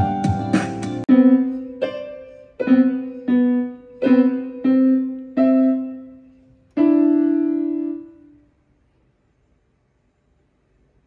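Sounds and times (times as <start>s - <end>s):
electronic keyboard piano notes: 0.0s - 8.4s.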